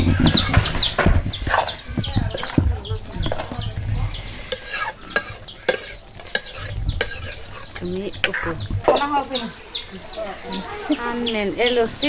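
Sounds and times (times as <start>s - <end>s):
chickens chirping: 0.0s - 12.0s
metal ladle scraping a metal pan: 4.2s - 9.0s.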